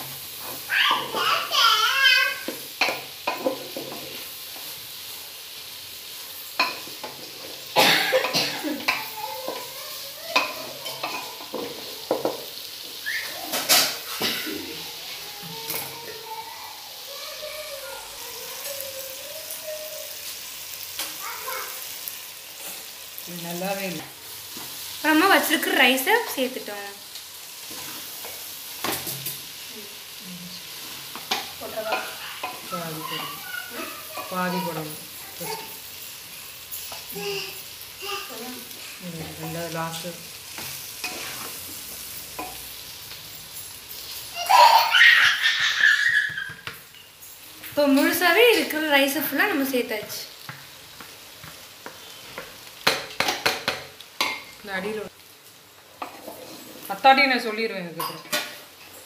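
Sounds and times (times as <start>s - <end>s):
vegetables sizzling in oil: 0.0s - 59.0s
wooden spatula scraping a pot: 38.9s - 42.6s, 56.0s - 57.0s.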